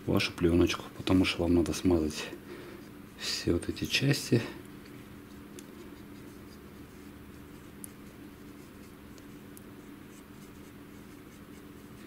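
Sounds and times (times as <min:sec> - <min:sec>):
steady low hum: 0:00.0 - 0:12.0
cotton swab scratching plastic: 0:05.3 - 0:12.0.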